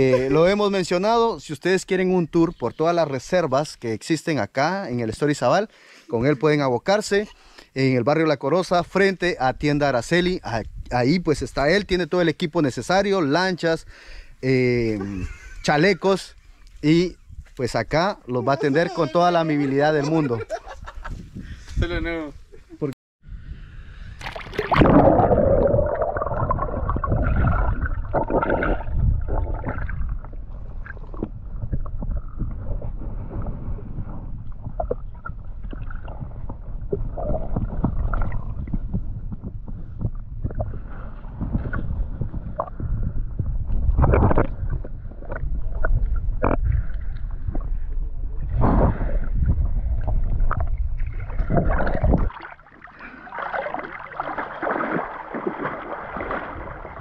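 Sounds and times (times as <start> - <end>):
muffled underwater sloshing: 24.3 - 57.0.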